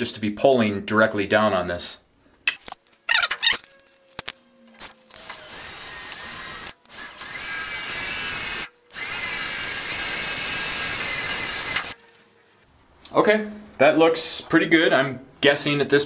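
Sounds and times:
electric drill drilling metal: 4.8s - 12.0s
drill clicks: 5.1s - 12.0s.

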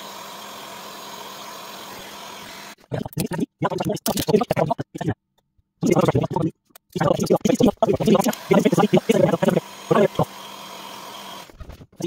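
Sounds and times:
heat gun blowing: 0.0s - 2.9s, 7.9s - 11.6s.

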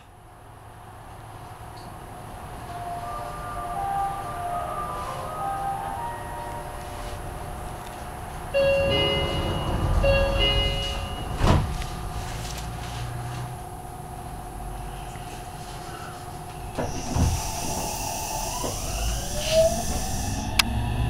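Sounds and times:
train door-closing chime: 2.6s - 12.5s
sliding doors shutting with thump: 8.6s - 12.4s, 16.7s - 20.2s.

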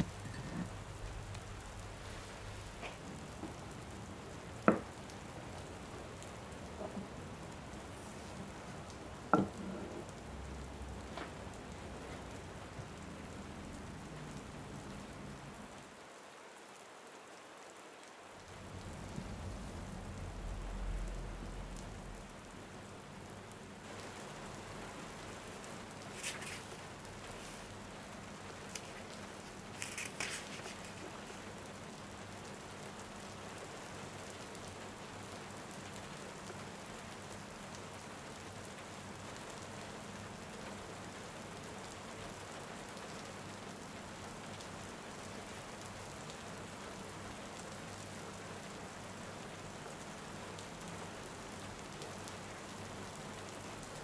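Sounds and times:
steady rain falling: 0.0s - 54.0s
soft low rumble: 18.6s - 22.4s.

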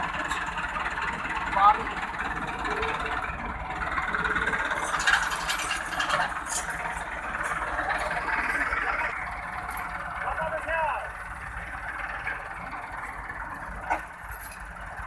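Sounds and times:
tractor diesel engine under load: 0.0s - 15.0s
rattling: 2.4s - 10.2s.

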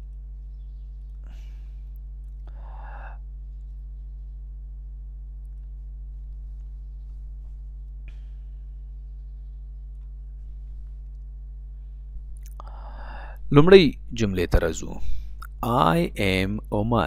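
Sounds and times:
steady low hum with tones: 0.0s - 17.0s
person breathing softly: 1.2s - 3.3s, 8.1s - 9.0s, 11.7s - 13.5s.

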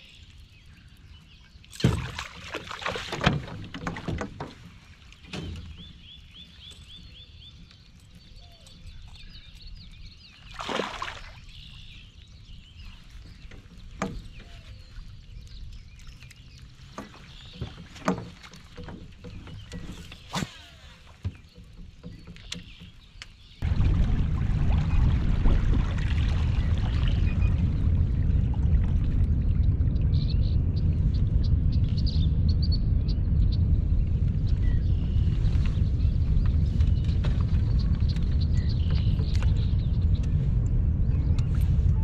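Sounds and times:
water splashing: 1.7s - 5.7s, 10.4s - 11.7s, 23.6s - 29.7s
fish thrashing at the surface: 10.5s - 11.4s.

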